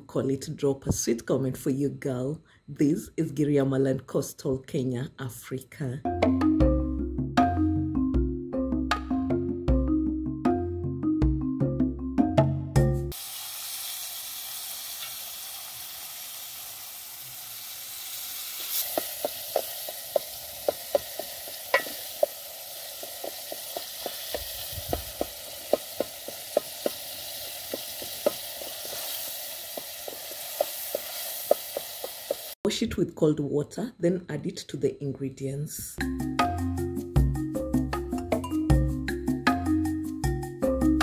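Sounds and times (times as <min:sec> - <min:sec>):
mallet percussion music: 0:06.1 - 0:13.2, 0:36.0 - 0:41.0
vegetables sizzling in oil: 0:13.1 - 0:32.6
wooden spoon knocking pot: 0:18.8 - 0:32.5.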